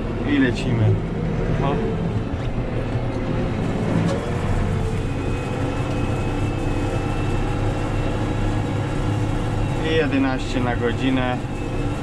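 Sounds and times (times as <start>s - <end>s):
tractor diesel engine running: 0.0s - 12.0s
faint high whine: 9.2s - 12.0s.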